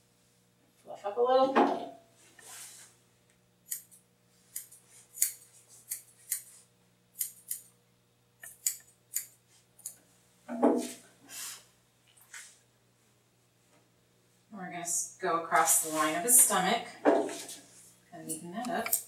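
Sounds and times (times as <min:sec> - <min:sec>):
scissors snipping hair: 0:03.7 - 0:06.5, 0:07.2 - 0:07.7, 0:08.4 - 0:10.0, 0:18.6 - 0:19.0.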